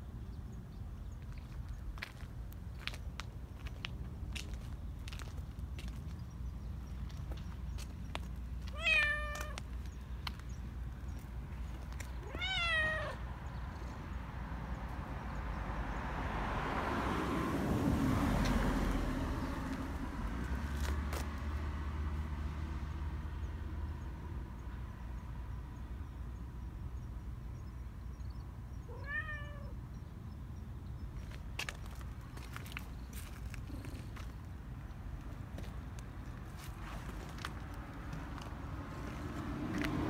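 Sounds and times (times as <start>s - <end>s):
cat meowing: 8.7s - 9.7s, 12.2s - 13.3s, 28.9s - 29.8s.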